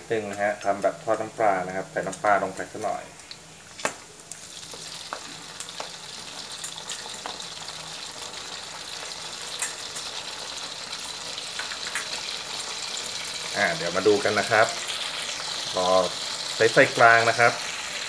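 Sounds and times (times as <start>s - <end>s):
oil sizzling with sharp pops: 0.0s - 18.0s.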